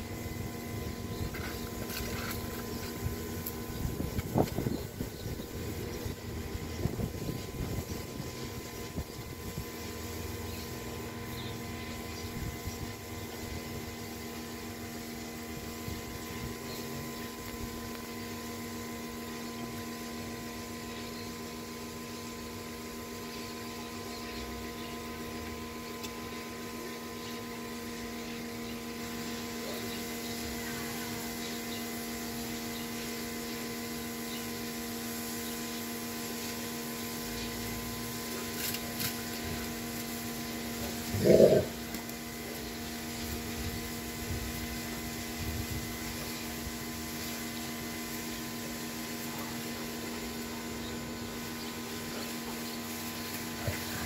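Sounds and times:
mechanical hum: 0.0s - 54.0s.

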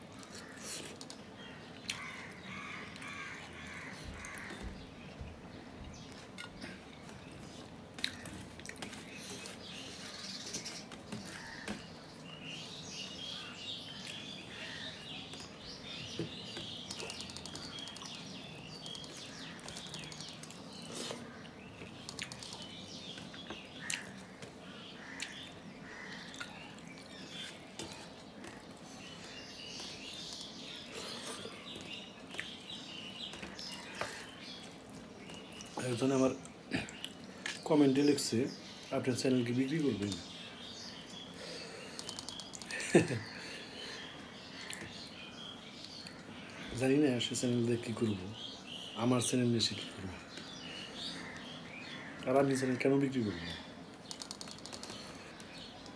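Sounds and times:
small birds chirping: 0.0s - 55.9s
sharp clicks: 41.9s - 42.8s, 53.9s - 55.9s.

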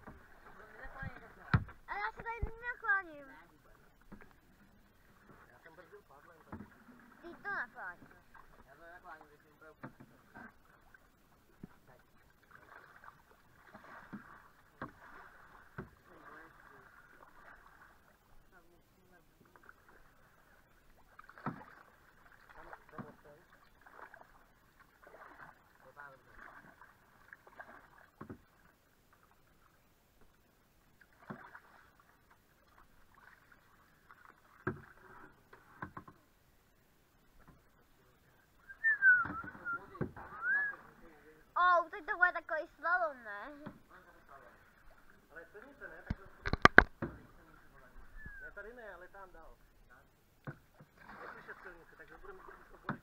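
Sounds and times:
paddles swishing through water: 0.0s - 53.0s
paddle knocks: 0.9s - 2.6s, 6.4s - 7.4s, 9.8s - 10.6s, 13.8s - 16.1s, 21.3s - 21.8s, 28.2s - 28.5s, 34.5s - 36.2s, 39.2s - 40.3s, 46.0s - 47.3s, 52.7s - 53.0s.

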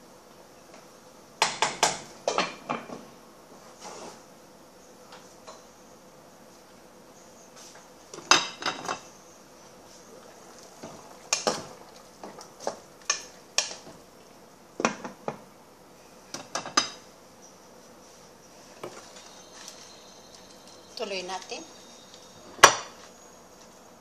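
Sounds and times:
dishes and utensils clinking: 8.2s - 9.1s.

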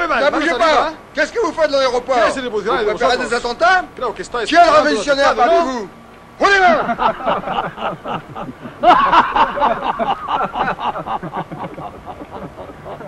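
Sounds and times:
person laughing: 6.8s - 13.0s.

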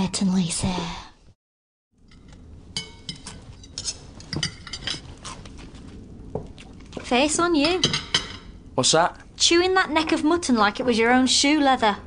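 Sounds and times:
cutlery and crockery clinking: 2.1s - 5.2s, 7.6s - 8.5s.

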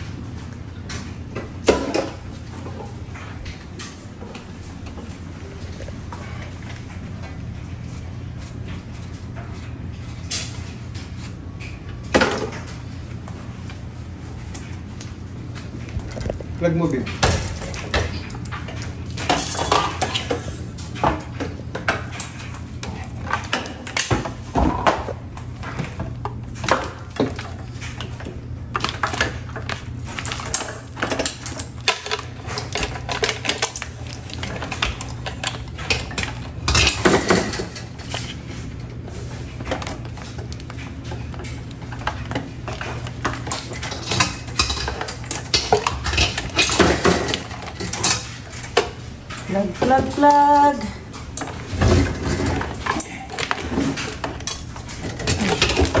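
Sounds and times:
steady low hum: 0.0s - 56.0s
metal clattering and clinking: 27.1s - 38.6s, 39.6s - 56.0s.

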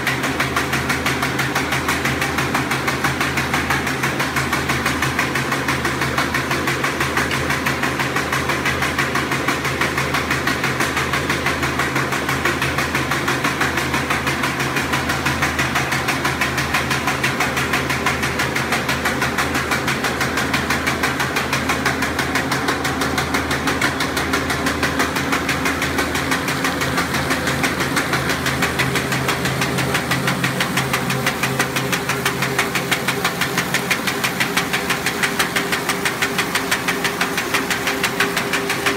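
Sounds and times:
machine mechanism clatter: 11.9s - 38.9s.

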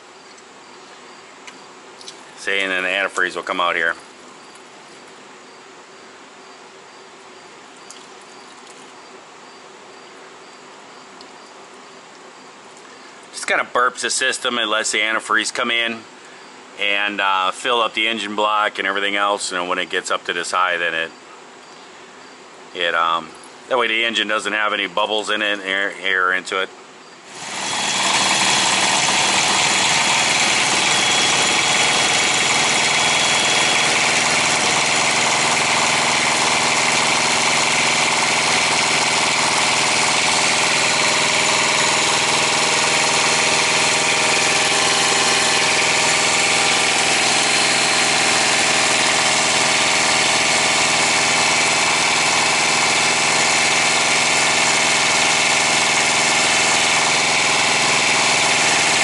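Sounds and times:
small diesel engine idling: 27.3s - 59.0s.

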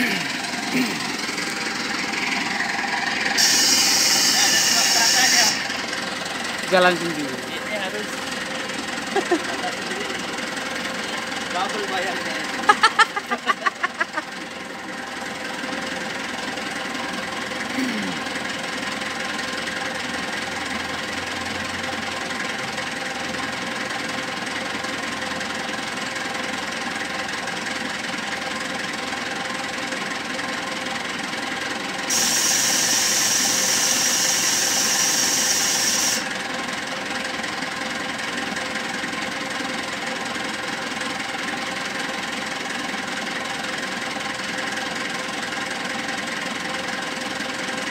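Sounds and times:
diesel engine running: 0.0s - 47.9s
loud high-pitched hiss: 3.4s - 5.8s, 32.1s - 36.3s.

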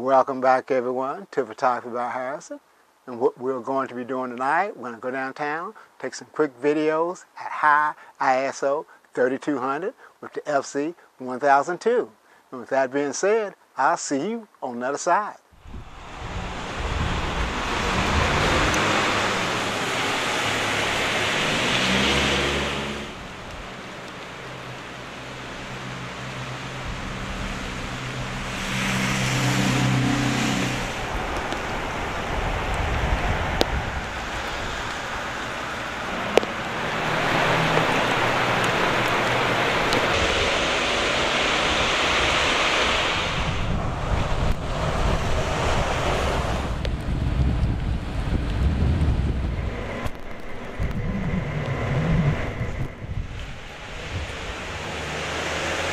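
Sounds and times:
tyres hissing on wet pavement: 15.6s - 47.0s, 53.2s - 55.9s
car engine hum: 15.7s - 41.8s.

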